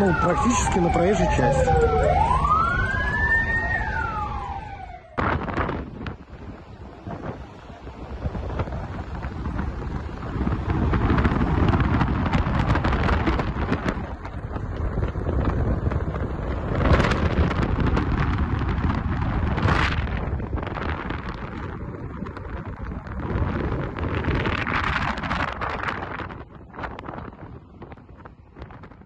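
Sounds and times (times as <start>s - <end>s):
road traffic rumble: 0.0s - 29.0s
wind buffeting microphone: 0.0s - 29.0s.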